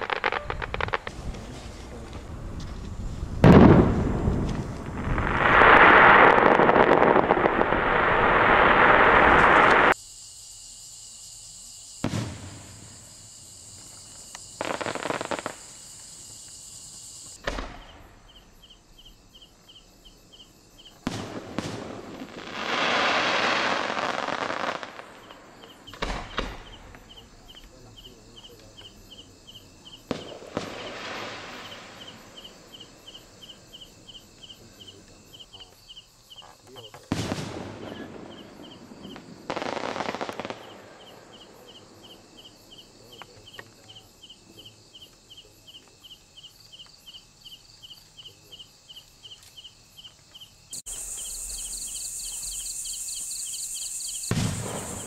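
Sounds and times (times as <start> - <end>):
firework crackling: 0.0 - 10.0, 12.0 - 18.2, 21.0 - 28.0, 28.9 - 33.6, 37.0 - 41.6, 50.8 - 55.0
crickets chirping: 0.0 - 55.0
firework shells bursting: 12.0 - 18.2, 30.0 - 33.4, 36.9 - 41.1, 54.2 - 55.0.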